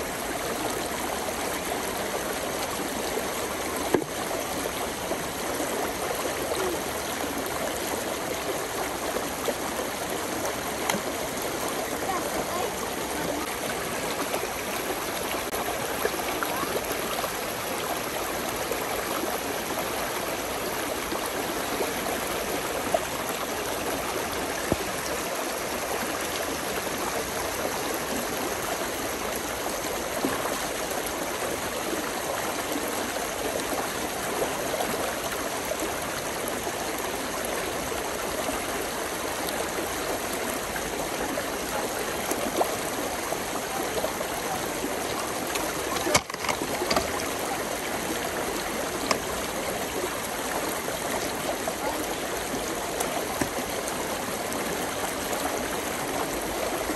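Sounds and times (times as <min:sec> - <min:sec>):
stream babbling: 0:00.0 - 0:56.9
water splashes: 0:00.0 - 0:56.9.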